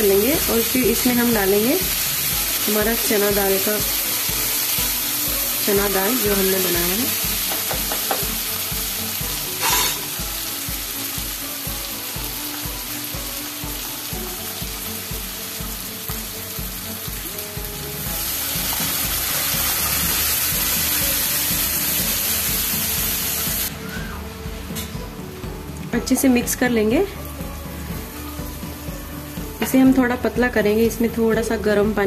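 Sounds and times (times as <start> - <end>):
food sizzling in hot oil: 0.0 - 32.0
spatula scraping pan: 9.6 - 10.1.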